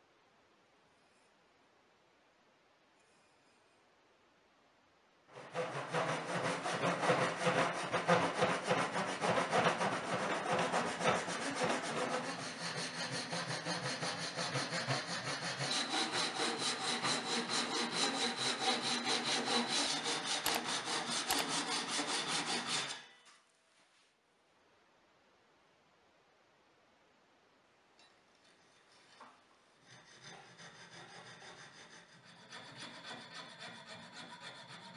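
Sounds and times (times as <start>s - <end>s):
hand saw cutting wood: 5.3s - 23.1s, 29.8s - 34.9s.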